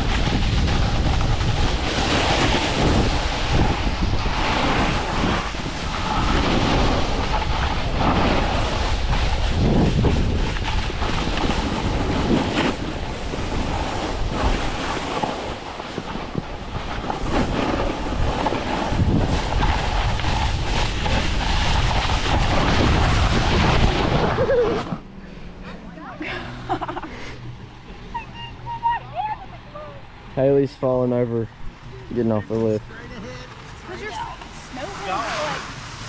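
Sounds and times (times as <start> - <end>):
wind rushing over microphone: 0.0 - 25.6
skis scraping snow: 0.0 - 26.0, 32.1 - 36.0.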